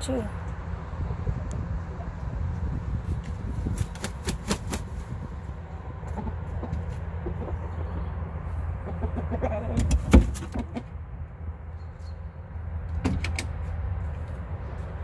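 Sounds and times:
steady low rumble: 0.0 - 9.4.

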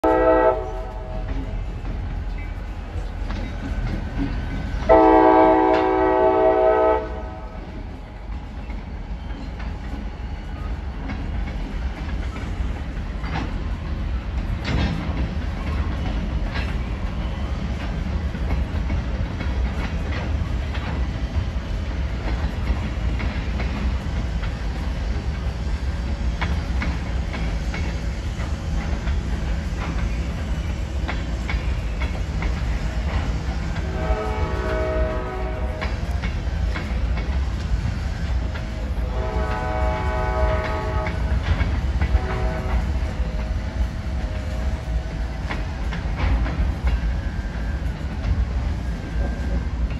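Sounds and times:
locomotive air horn: 0.0 - 1.3, 4.9 - 7.6, 33.7 - 36.0, 39.0 - 41.4, 42.1 - 43.0
train wheel clacks: 0.0 - 49.9.

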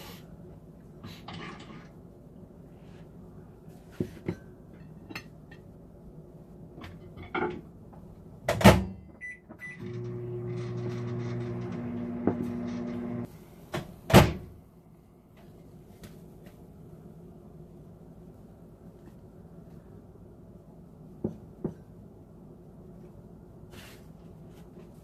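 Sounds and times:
microwave running hum: 8.5 - 14.6.

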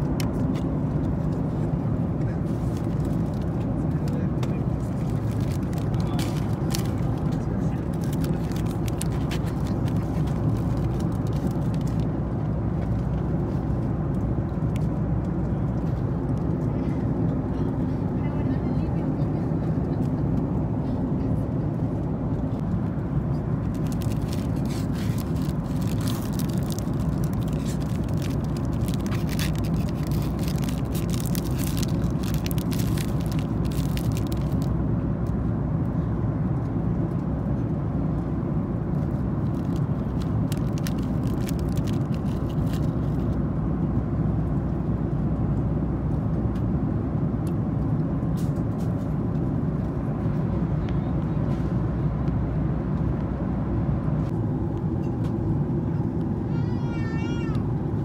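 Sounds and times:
airliner cabin noise: 0.0 - 58.0
plastic wrapper crinkling: 4.9 - 7.3, 7.9 - 12.0, 23.6 - 34.7, 39.1 - 43.3.

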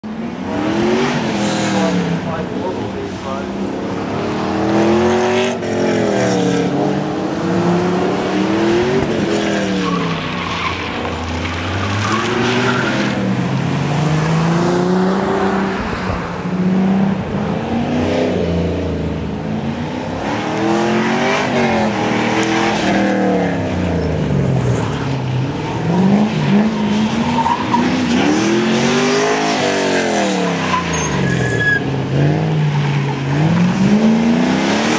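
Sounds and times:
sports car engine revving: 0.1 - 34.9
tyres squealing: 30.6 - 32.0.

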